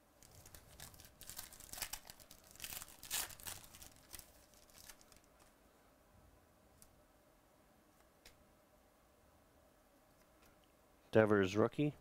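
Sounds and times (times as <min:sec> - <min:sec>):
foil wrapper crinkling and tearing: 0:00.2 - 0:05.3.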